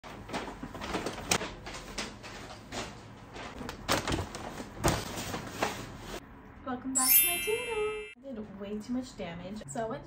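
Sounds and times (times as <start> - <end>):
paper bags rustling: 0.1 - 6.0.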